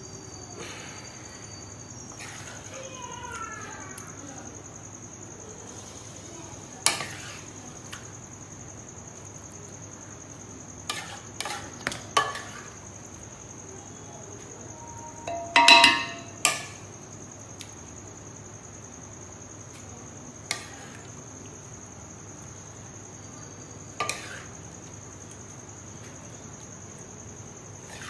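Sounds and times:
steady high-pitched whine: 0:11.7 - 0:19.5
metal spoon clinking on pots: 0:15.2 - 0:16.8.

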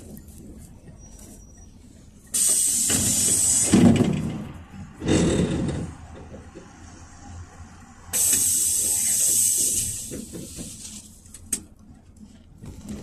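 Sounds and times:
bus engine humming: 0:00.0 - 0:13.0
compressed air hissing: 0:02.4 - 0:04.0, 0:08.1 - 0:11.1.

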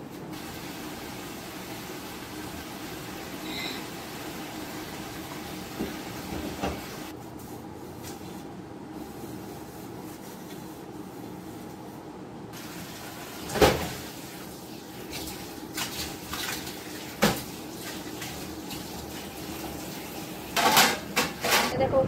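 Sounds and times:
dishes and utensils clattering: 0:20.6 - 0:21.7.

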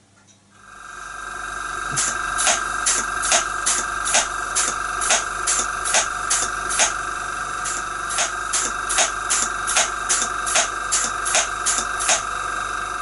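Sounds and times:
steady steam hiss: 0:00.7 - 0:13.0
steam hammer striking anvil: 0:01.9 - 0:07.0, 0:07.6 - 0:12.3.

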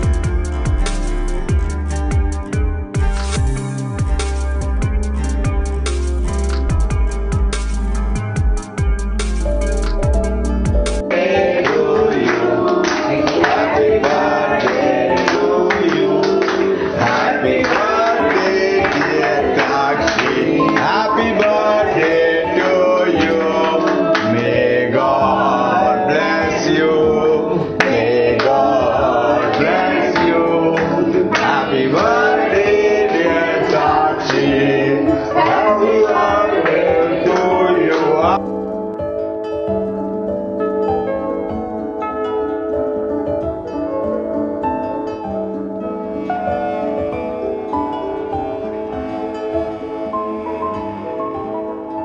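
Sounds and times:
instrumental accompaniment: 0:00.0 - 0:52.0
person singing: 0:11.0 - 0:38.4.

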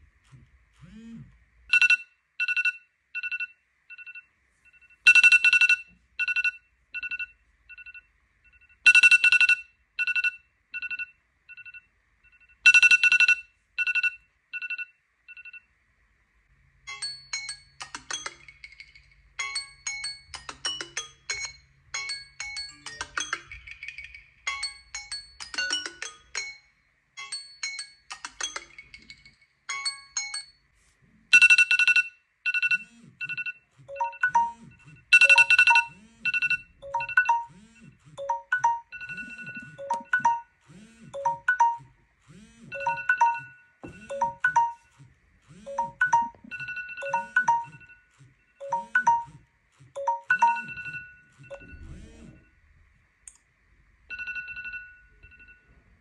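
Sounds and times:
phone timer alarm beeps: 0:01.7 - 0:15.7, 0:31.3 - 0:40.6, 0:41.2 - 0:42.0, 0:42.7 - 0:44.9, 0:45.6 - 0:52.5
phone alarm mallet-like melody: 0:31.4 - 0:37.5, 0:38.2 - 0:40.5, 0:41.2 - 0:41.9, 0:42.7 - 0:44.9, 0:45.7 - 0:49.4, 0:50.0 - 0:51.7.

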